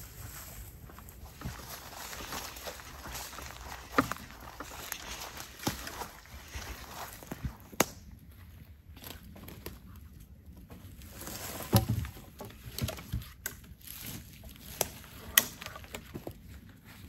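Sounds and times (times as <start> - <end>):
footsteps on forest floor: 0.0 - 9.8
branches snapping: 1.4 - 8.1, 12.7 - 16.0.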